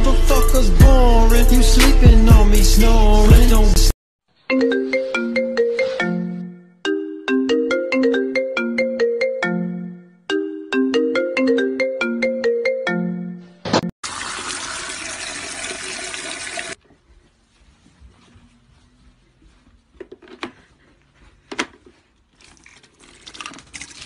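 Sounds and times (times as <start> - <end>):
marimba ringtone melody: 4.5 - 13.4.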